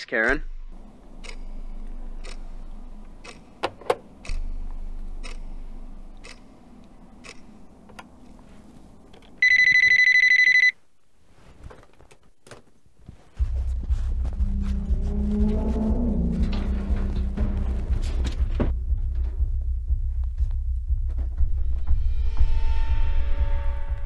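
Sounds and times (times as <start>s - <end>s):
low music: 0.4s - 9.1s, 13.4s - 24.0s
telephone ringing: 9.4s - 10.8s.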